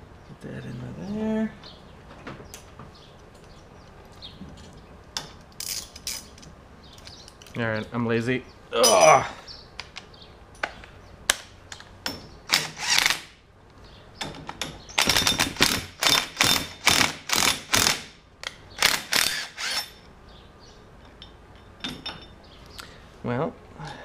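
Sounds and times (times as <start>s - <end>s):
cordless drill driving bolts: 12.5s - 13.3s, 15.0s - 18.1s, 18.8s - 20.0s.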